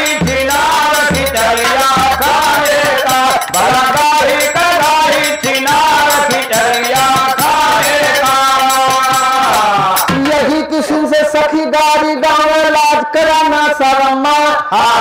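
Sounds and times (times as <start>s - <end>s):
drum strokes: 0.0s - 11.6s
jingling percussion: 0.0s - 12.5s
men singing folk song: 0.0s - 12.6s.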